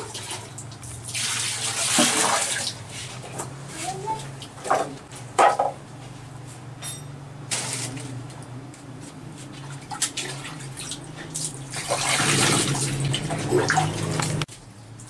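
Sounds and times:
water splashing and pouring: 0.0s - 3.2s, 9.6s - 14.5s.

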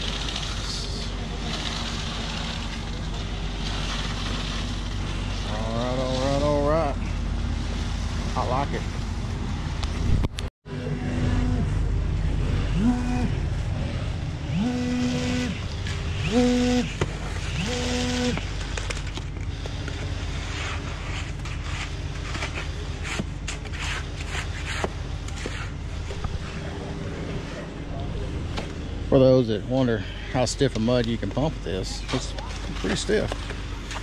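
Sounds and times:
concrete pump engine rumble: 0.0s - 34.0s
humming tone: 9.2s - 21.1s.

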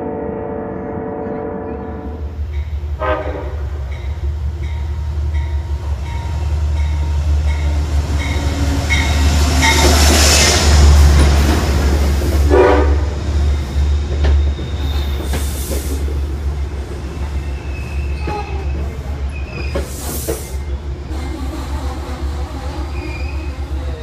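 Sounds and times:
train horn: 0.0s - 2.4s, 3.0s - 3.9s, 12.5s - 13.2s
passenger train rumbling past: 0.0s - 24.0s
wheels squealing: 17.0s - 24.0s.

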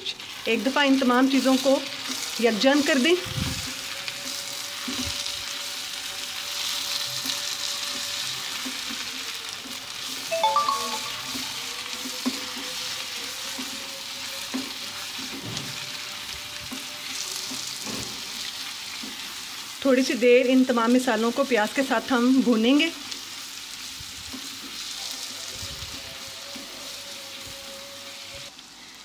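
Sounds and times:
onions sizzling in hot oil: 0.0s - 29.0s
spatula scraping a pan: 1.4s - 10.0s
brief pitched sound: 10.3s - 11.7s.

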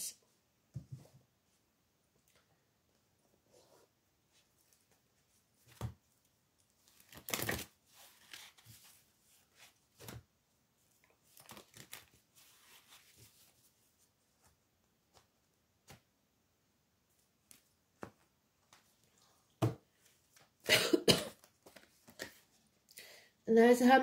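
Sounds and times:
cards rustling and shuffling: 6.8s - 10.2s, 11.0s - 13.6s, 21.4s - 22.5s.

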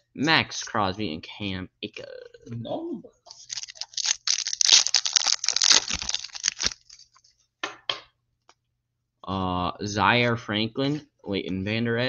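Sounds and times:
card pack wrapper tearing: 3.3s - 7.2s.

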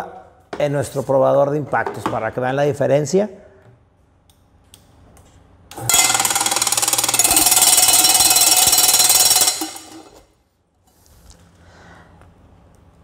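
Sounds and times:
loud rapid rattling of impact tester: 5.7s - 10.2s.

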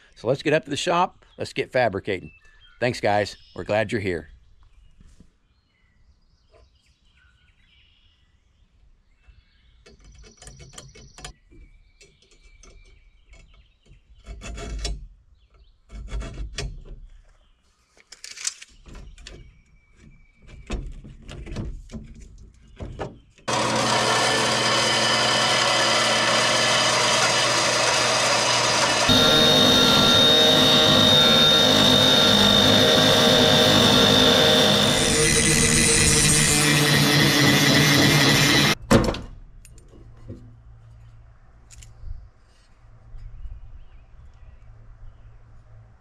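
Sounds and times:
loud steady machine noise: 23.5s - 38.8s.

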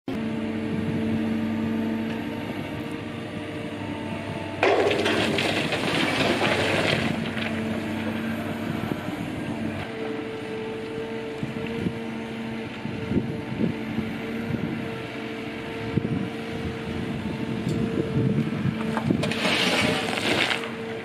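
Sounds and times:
excavator humming: 0.1s - 21.0s
dirt and stones pouring out: 4.6s - 8.5s, 19.2s - 20.8s.

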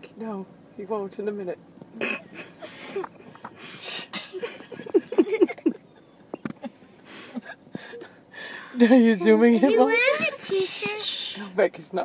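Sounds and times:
people stifling laughter: 4.3s - 8.1s.

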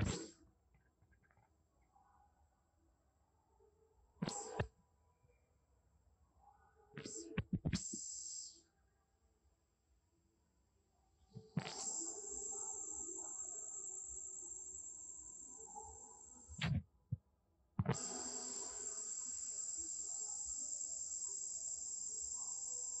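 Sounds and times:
insects droning in trees: 11.6s - 16.6s, 18.0s - 23.0s.

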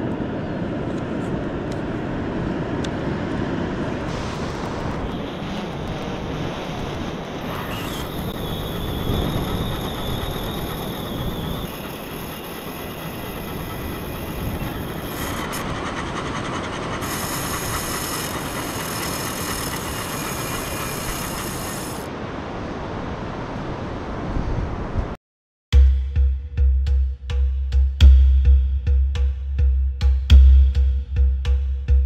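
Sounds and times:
fishing reel drag buzzing: 7.5s - 15.7s, 17.0s - 22.1s.

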